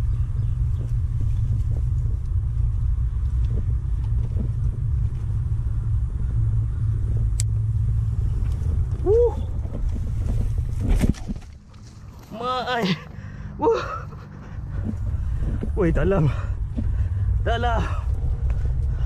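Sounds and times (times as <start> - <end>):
wind buffeting microphone: 0.0 - 11.4.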